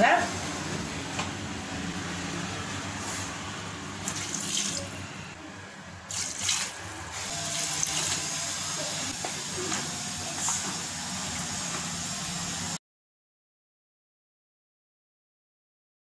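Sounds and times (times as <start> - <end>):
water pouring and splashing: 4.0 - 5.0, 6.1 - 9.1.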